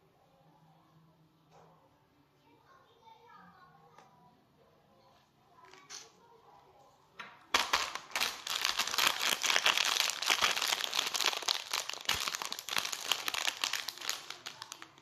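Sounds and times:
plastic wrapper crinkling: 7.5s - 15.0s.

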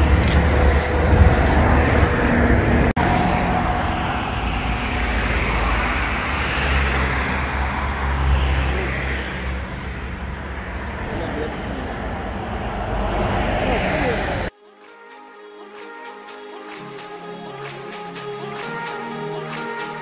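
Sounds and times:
passing cars and trucks rumbling: 0.0s - 14.5s.

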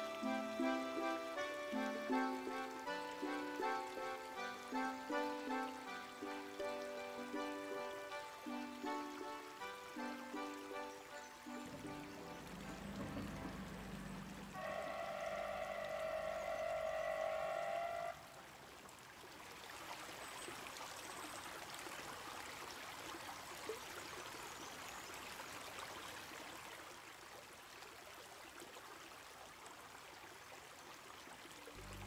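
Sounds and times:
water rushing over weir: 9.2s - 18.7s.

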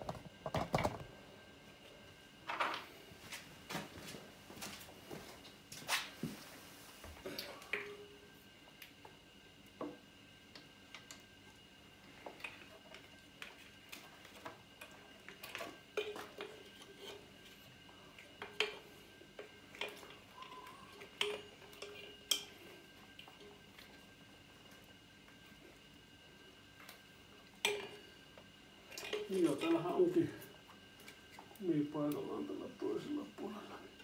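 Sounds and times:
radiator parts clicking and knocking: 0.0s - 1.1s.

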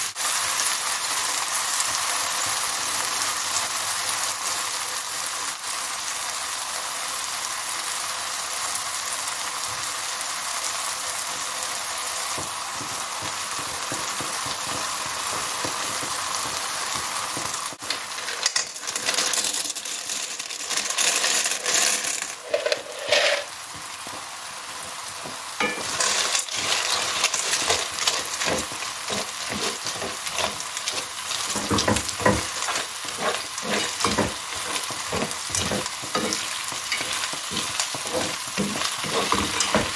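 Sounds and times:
vegetables sizzling in a frying pan: 0.0s - 39.9s
wooden spoon scraping a pan: 12.3s - 23.7s, 25.6s - 39.9s
dry pasta poured clattering: 17.8s - 23.6s, 25.6s - 39.9s.

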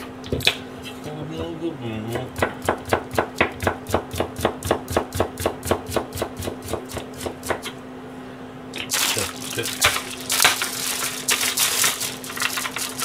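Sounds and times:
knife chopping on plastic board: 1.4s - 7.8s.

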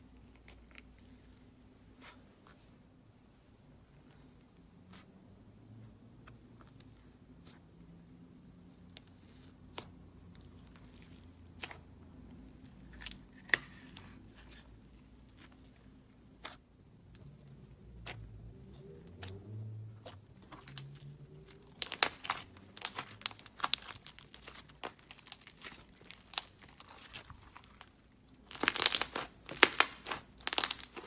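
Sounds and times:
slime squished by hand crackling: 8.6s - 31.0s.

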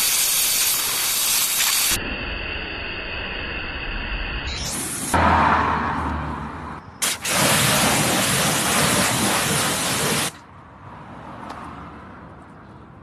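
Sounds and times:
pressure washer water spray: 0.0s - 2.0s, 7.0s - 10.4s.

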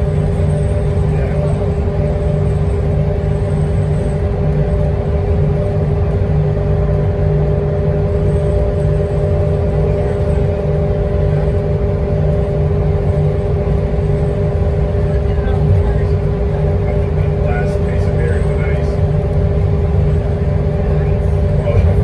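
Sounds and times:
bus engine drone: 0.0s - 22.0s.

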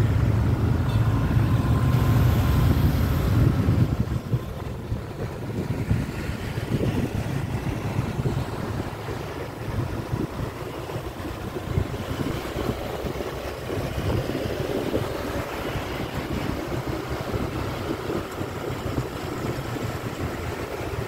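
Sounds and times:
street traffic: 0.0s - 21.0s
wind buffeting microphone: 0.0s - 21.0s.

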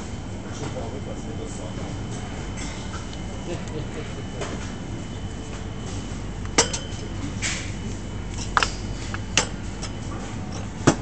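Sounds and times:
shop background hum: 0.0s - 11.0s.

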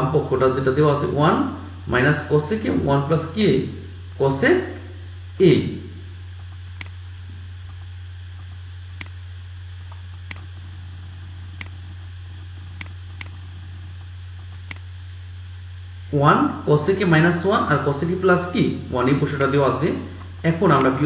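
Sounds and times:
low electrical hum: 0.0s - 21.0s
computer mouse clicking: 6.4s - 7.0s, 7.6s - 9.2s, 9.8s - 10.7s, 11.4s - 11.9s, 12.6s - 14.9s.

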